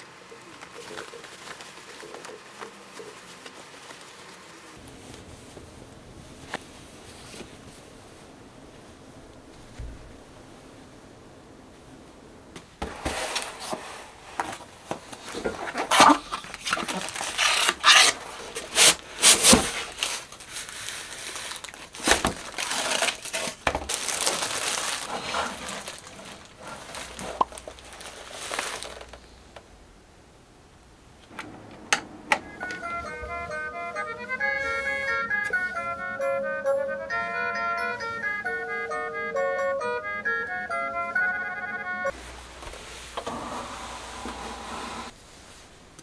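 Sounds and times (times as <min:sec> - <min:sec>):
crinkling and rustling: 0:00.0 - 0:10.4, 0:12.5 - 0:29.7, 0:42.1 - 0:46.0.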